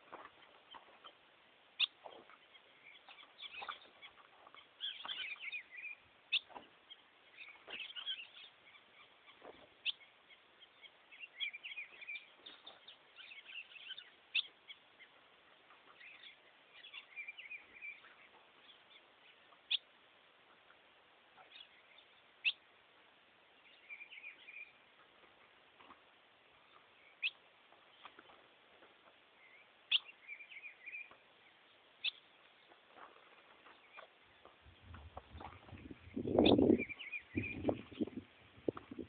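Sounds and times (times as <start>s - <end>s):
bird twittering: 1.8s - 14.8s, 29.4s - 31.2s, 32.0s - 32.2s, 34.7s - 38.3s.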